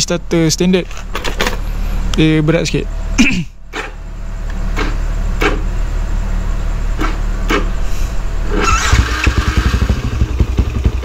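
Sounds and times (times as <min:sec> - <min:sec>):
electric starter cranking engine: 0:08.4 - 0:11.0
motorcycle engine running loudly: 0:08.5 - 0:11.0.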